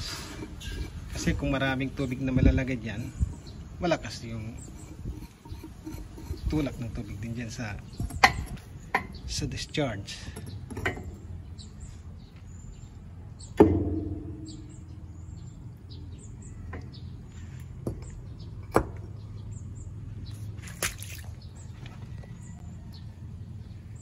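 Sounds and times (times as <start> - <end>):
birds chirping: 0.0 - 24.0
steady low hum: 0.0 - 24.0
metal pipe knock with ringing: 8.0 - 9.2, 13.5 - 15.1.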